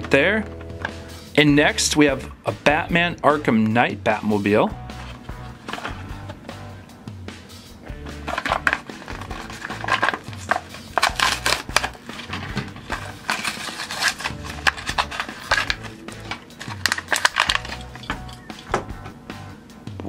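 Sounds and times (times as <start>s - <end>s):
background music: 0.0s - 20.0s
cardboard and plastic tearing: 8.2s - 18.0s.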